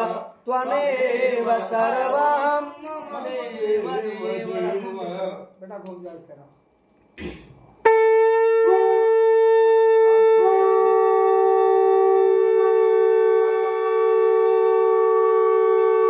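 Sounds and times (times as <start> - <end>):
conch shell blast: 7.8 - 16.0.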